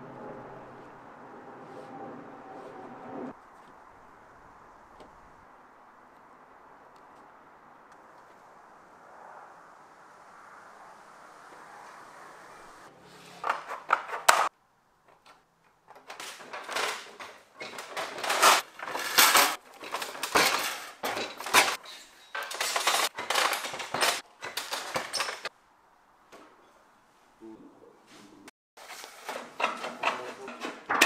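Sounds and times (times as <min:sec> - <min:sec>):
sheet metal clattering: 0:15.9 - 0:25.5.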